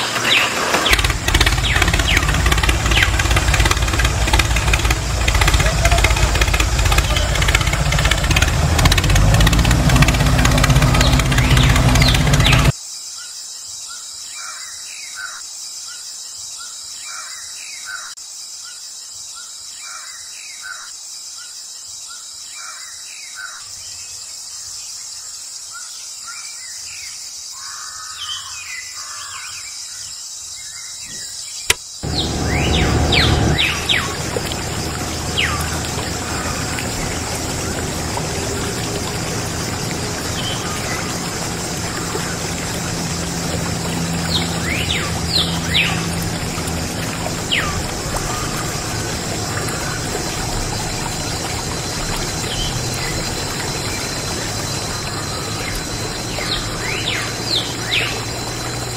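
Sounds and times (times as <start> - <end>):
loud engine running: 0.0 - 12.7, 32.0 - 58.9
small birds chirping: 0.0 - 12.8, 31.0 - 58.9.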